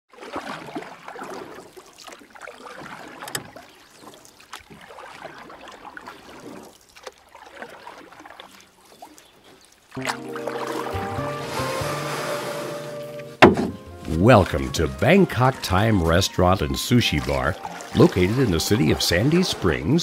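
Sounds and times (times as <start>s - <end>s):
water splashing and trickling: 0.1s - 20.0s
music with held notes: 10.0s - 19.6s.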